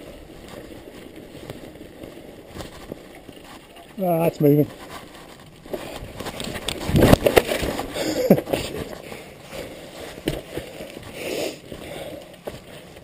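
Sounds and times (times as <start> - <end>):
bike rattling: 0.0 - 13.0
bike tyres knocking on wood: 10.2 - 10.8.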